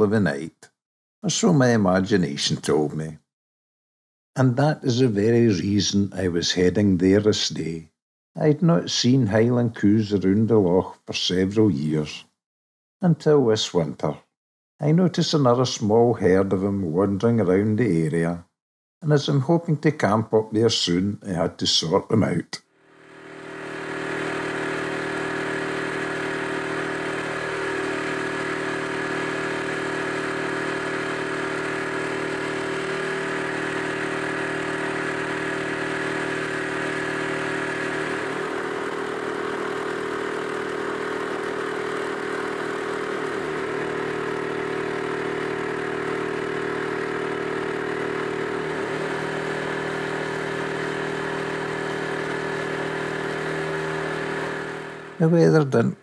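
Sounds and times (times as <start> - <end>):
boat engine running: 22.9 - 55.2.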